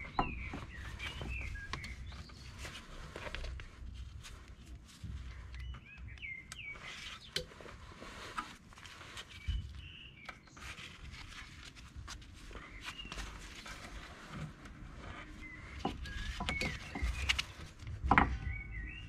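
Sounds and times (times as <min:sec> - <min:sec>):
small birds chirping: 0:00.0 - 0:19.0
gloved hands working wire: 0:10.2 - 0:18.6.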